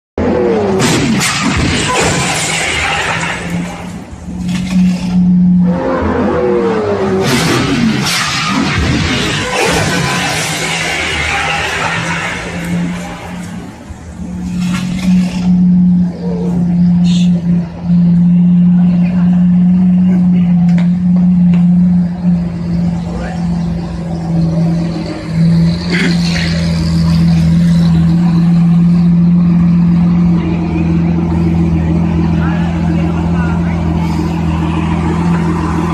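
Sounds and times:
car engine revving: 0.2s - 35.9s
falling engine whine: 0.2s - 35.9s.

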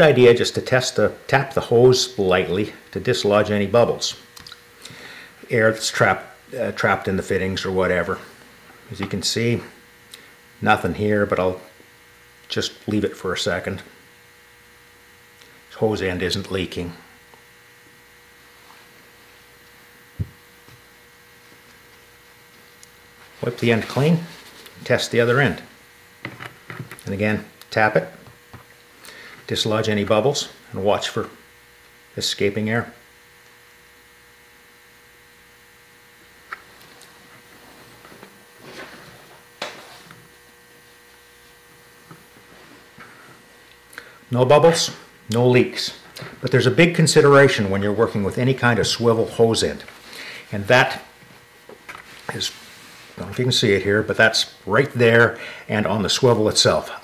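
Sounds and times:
faint electrical mains hum: 0.0s - 57.0s
soft rustle: 23.2s - 24.8s.

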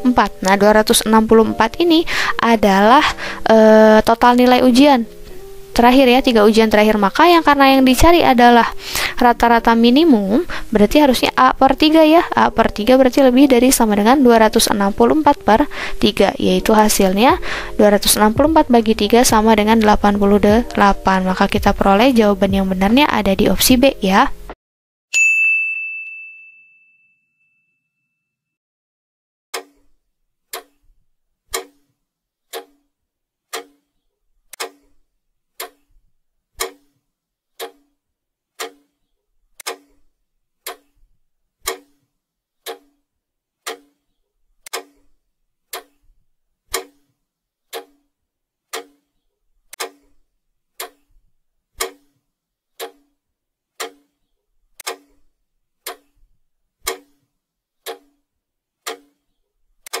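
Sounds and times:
clock ticking: 0.0s - 5.1s, 6.2s - 24.1s, 30.5s - 30.8s, 31.5s - 31.9s, 32.5s - 32.8s, 33.5s - 33.8s, 34.5s - 34.9s, 35.6s - 35.9s, 36.6s - 37.0s, 37.6s - 37.9s, 38.6s - 38.9s, 39.6s - 40.0s, 40.6s - 41.0s, 41.6s - 42.0s, 42.6s - 43.0s, 43.6s - 44.0s, 44.6s - 45.0s, 45.7s - 46.0s, 46.7s - 47.1s, 47.7s - 48.1s, 48.7s - 49.0s, 49.7s - 50.2s, 50.8s - 51.1s, 51.8s - 52.2s, 52.8s - 53.2s, 53.8s - 54.2s, 54.8s - 55.2s, 55.8s - 56.2s, 56.8s - 57.2s, 57.8s - 58.2s, 58.8s - 59.2s.

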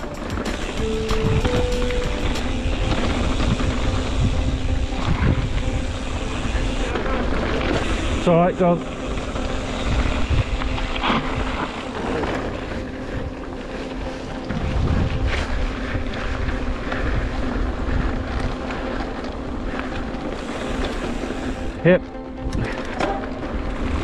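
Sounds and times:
tyres rumbling over dirt: 0.0s - 24.0s
wind rushing over microphone: 0.0s - 24.0s
bike knocks and rattles: 22.6s - 23.6s.

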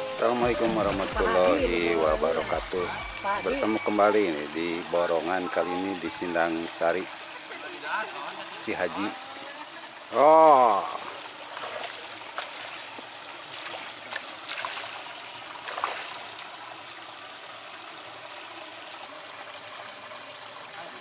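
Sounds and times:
trickling running water: 0.0s - 21.0s
fish splashing at surface: 11.0s - 16.4s.

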